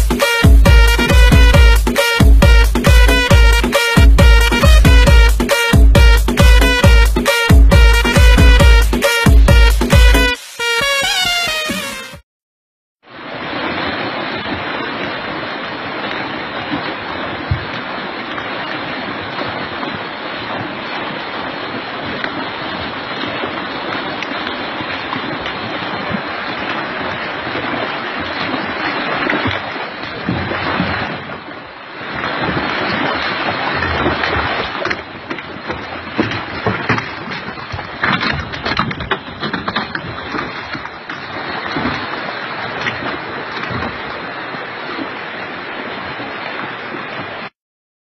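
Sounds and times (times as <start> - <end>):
floodwater rushing and splashing: 0.0 - 12.0, 13.0 - 47.5.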